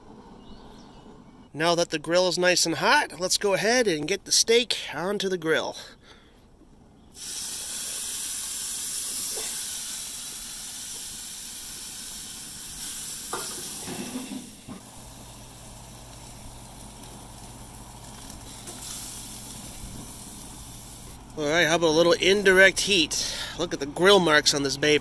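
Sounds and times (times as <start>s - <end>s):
steak sizzling on a grill: 7.2s - 21.4s.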